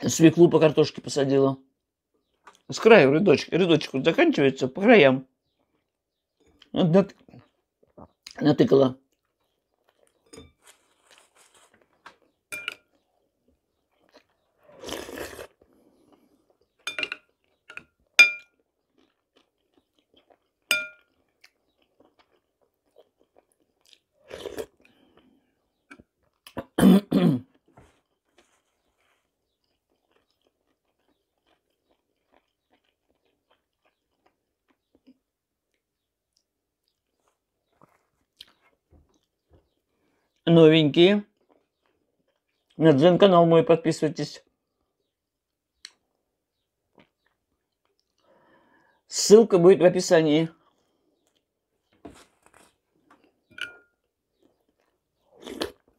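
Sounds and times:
chewing and crunching: 9.0s - 26.8s, 27.5s - 40.4s, 41.3s - 42.8s, 45.5s - 48.9s, 50.6s - 55.9s
metal spoon clinking on glass bowl: 12.5s - 12.9s, 16.8s - 18.5s, 20.7s - 21.1s, 53.5s - 53.9s.

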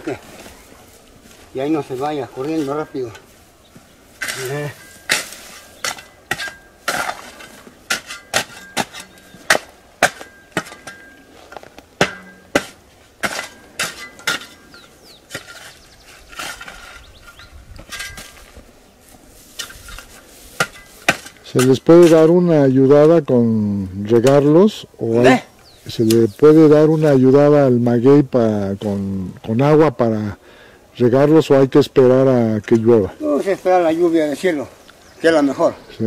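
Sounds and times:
shovel chopping stony soil: 4.2s - 18.6s, 19.6s - 22.2s.

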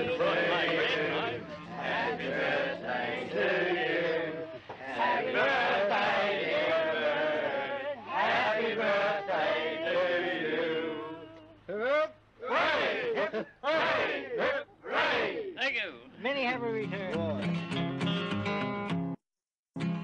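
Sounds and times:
group of voices singing: 0.0s - 11.6s.

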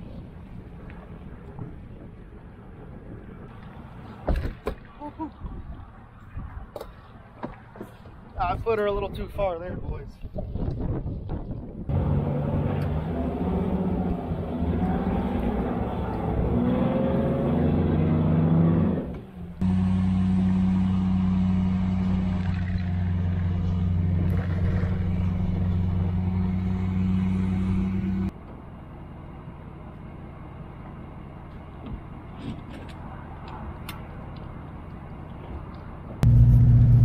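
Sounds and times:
pickup truck engine: 11.9s - 37.0s.

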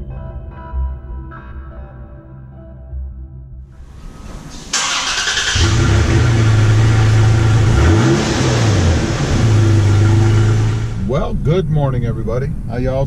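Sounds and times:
car engine starting and idling: 3.8s - 13.0s.

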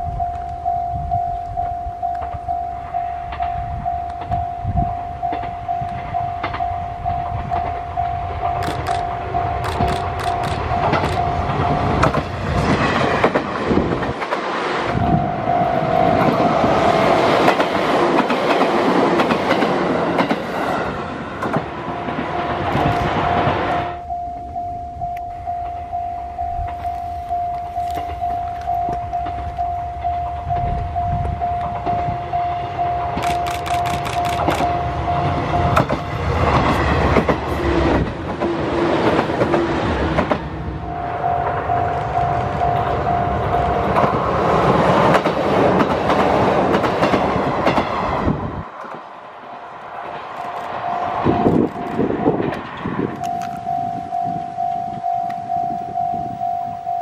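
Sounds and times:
level crossing electronic bell: 0.0s - 9.6s, 24.0s - 33.2s, 40.8s - 43.8s, 53.3s - 57.0s
level crossing warning bell: 0.0s - 13.3s, 14.9s - 20.4s, 21.8s - 47.8s, 50.5s - 57.0s
train low rumble: 0.0s - 57.0s
train wheel clacks: 8.4s - 15.0s, 16.1s - 23.7s, 33.1s - 34.8s, 35.6s - 40.6s, 41.5s - 49.1s.

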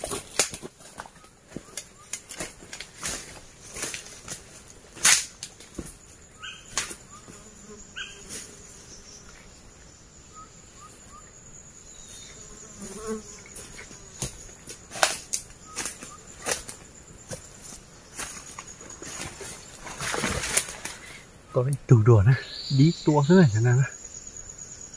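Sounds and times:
dry bamboo and twigs cracking: 0.0s - 6.0s, 14.2s - 17.5s, 18.2s - 21.2s
insects buzzing: 0.0s - 24.9s.

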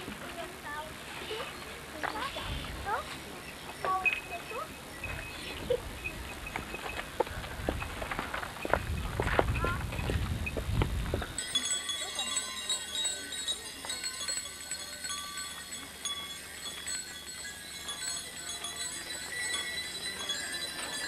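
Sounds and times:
faint crowd voices: 0.0s - 8.4s, 11.1s - 21.0s
small bells ringing: 0.3s - 21.0s.

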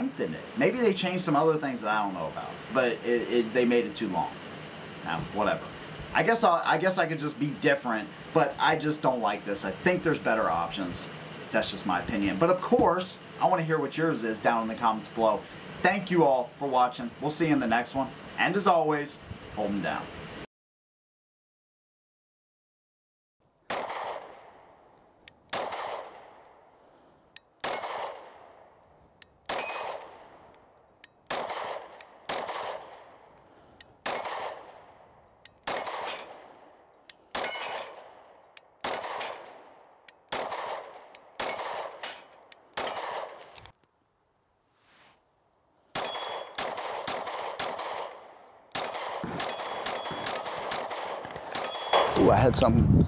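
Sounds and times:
pistol shots with echo: 23.7s - 24.5s, 25.5s - 26.4s, 27.6s - 28.6s, 29.5s - 30.2s, 31.3s - 33.2s, 34.0s - 35.0s, 35.6s - 36.4s, 37.3s - 39.5s, 40.3s - 43.5s, 46.0s - 52.2s.

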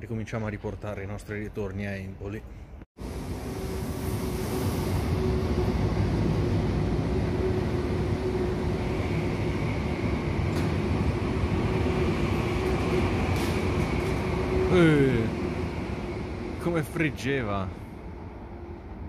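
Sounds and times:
electric train running: 3.0s - 17.2s
train hum: 3.0s - 19.0s.

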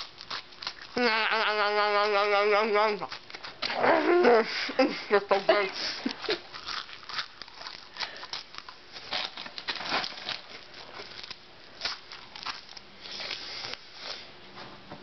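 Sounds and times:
chewing crunchy cereal: 0.0s - 1.0s, 6.0s - 14.2s.

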